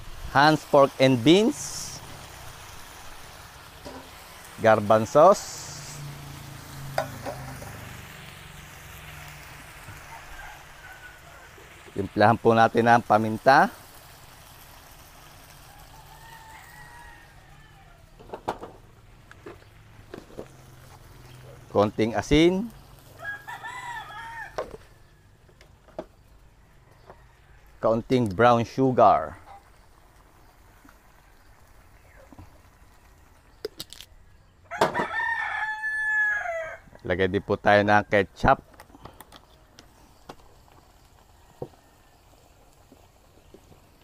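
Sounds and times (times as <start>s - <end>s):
rooster crowing: 9.1s - 11.8s, 15.6s - 18.2s, 23.1s - 25.3s, 34.7s - 37.0s.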